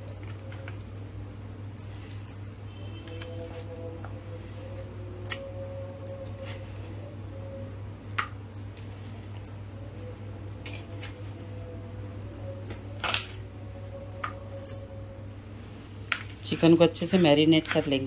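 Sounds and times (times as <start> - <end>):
glass bangles clinking: 0.0 - 4.0, 4.7 - 6.6, 8.0 - 11.4, 12.0 - 13.2, 13.9 - 15.0
low hum: 0.0 - 16.4.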